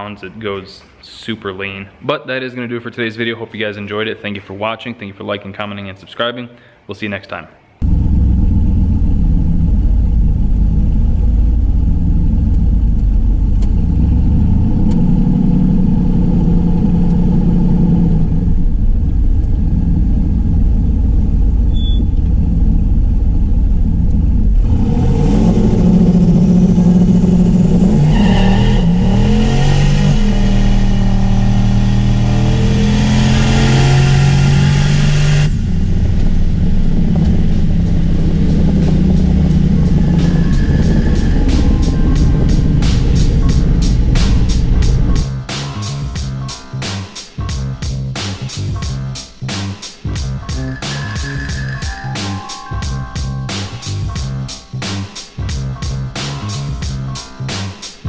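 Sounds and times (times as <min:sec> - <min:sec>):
car engine accelerating: 0:07.8 - 0:46.5.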